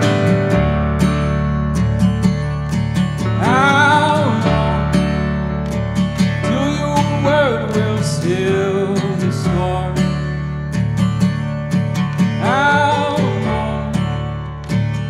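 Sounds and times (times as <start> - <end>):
strummed acoustic guitar: 0.0 - 15.0
man singing: 3.4 - 5.3, 6.4 - 10.4, 12.4 - 14.3.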